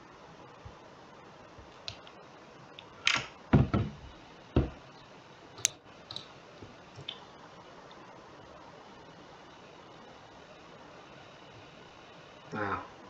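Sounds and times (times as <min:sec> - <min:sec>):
dull knocks and thumps: 0:03.5 - 0:04.0, 0:04.6 - 0:04.8.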